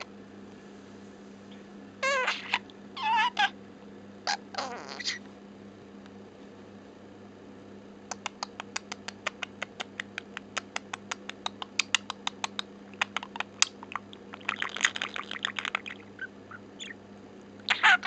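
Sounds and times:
budgerigar chattering warble: 2.0 - 3.5, 4.3 - 5.2, 11.5 - 17.0, 17.6 - 18.0
budgerigar chirps: 2.0 - 3.5, 4.3 - 5.2, 13.0 - 17.0, 17.6 - 18.0
budgerigar clicking: 8.1 - 17.0.

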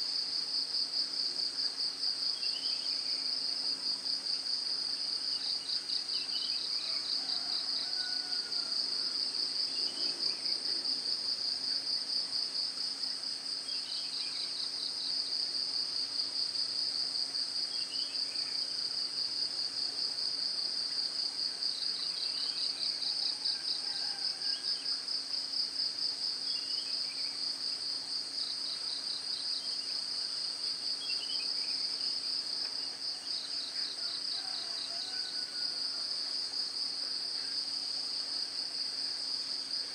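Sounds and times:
insect chorus trilling: 28.4 - 39.9.

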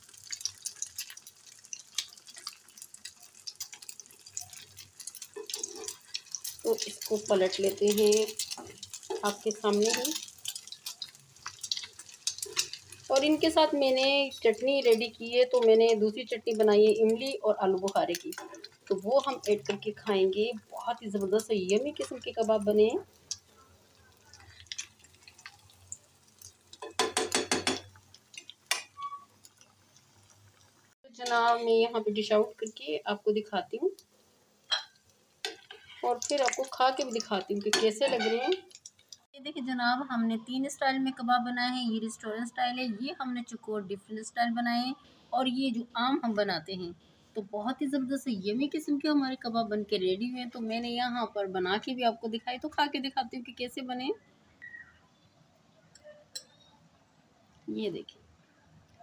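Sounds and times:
food deep-frying in hot oil: 0.0 - 55.3
metal spatula scraping pan: 5.0 - 6.4, 37.7 - 38.8.

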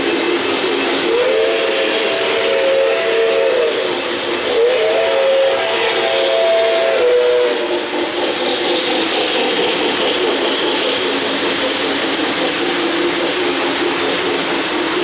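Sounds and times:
model train cars rolling on track: 0.0 - 15.0.

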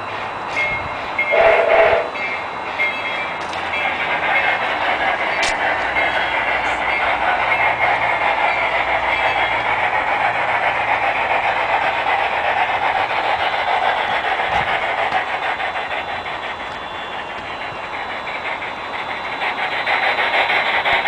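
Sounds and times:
model steam locomotive hissing: 0.0 - 21.0.

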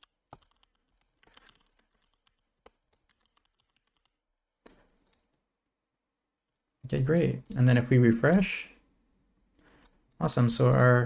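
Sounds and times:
keyboard typing clicks: 0.0 - 5.3, 9.5 - 11.0.

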